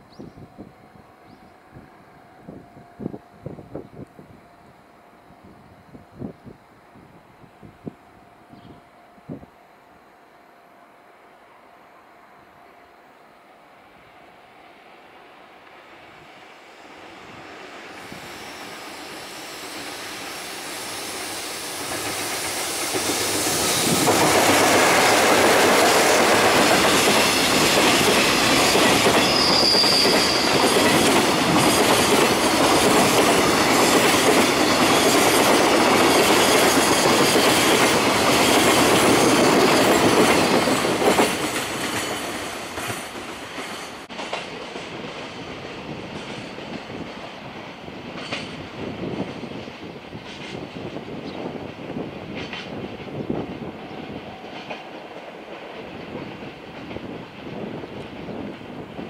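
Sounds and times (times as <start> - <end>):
freight train passing: 0.0 - 59.0
high squeal: 16.6 - 24.1, 27.1 - 31.1.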